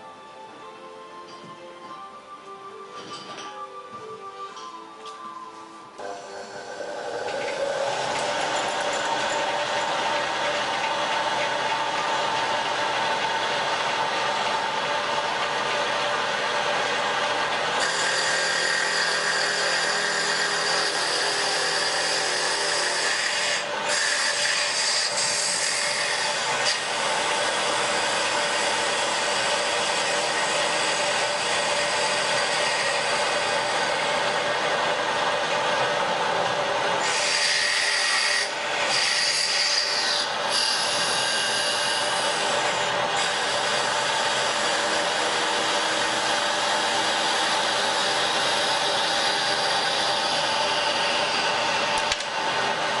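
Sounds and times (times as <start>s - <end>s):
lathe whirring: 2.0s - 53.0s.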